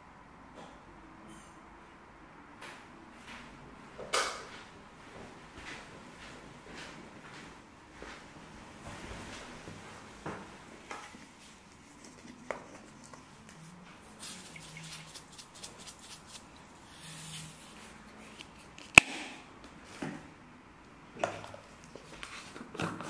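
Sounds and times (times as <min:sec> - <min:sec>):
pepper mill grinding: 0:11.7 - 0:17.6.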